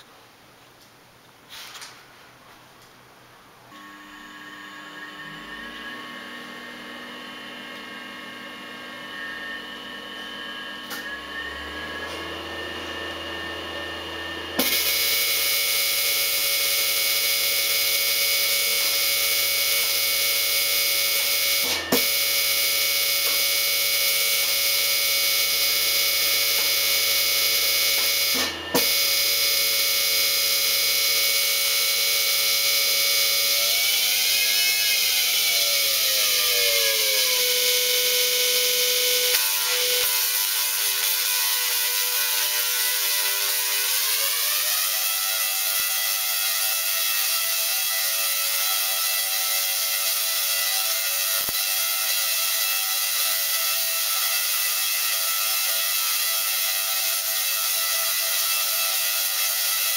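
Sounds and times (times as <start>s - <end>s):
tesla coil humming: 3.7s - 44.7s
tesla coil buzzing hiss: 14.6s - 44.0s.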